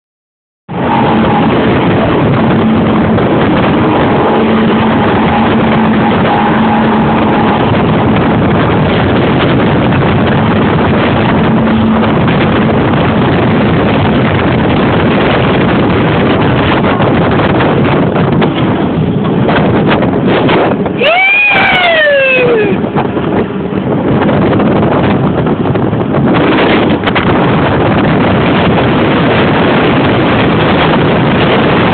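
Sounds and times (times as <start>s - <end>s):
boat engine hum: 0.7s - 31.9s
wind and water rushing: 0.7s - 31.9s.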